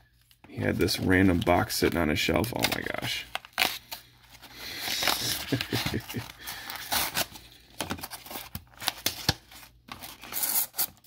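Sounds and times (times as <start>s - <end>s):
cardboard tearing and scraping: 2.6s - 11.0s.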